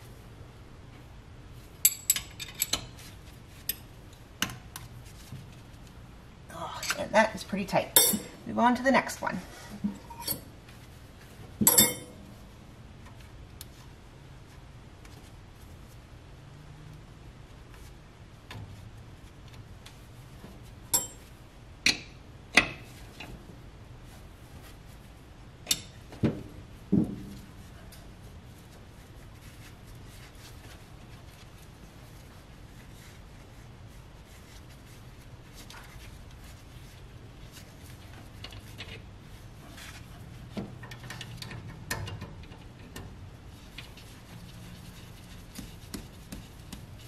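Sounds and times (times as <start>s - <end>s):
wrench clinking on metal fitting: 11.7s - 12.1s.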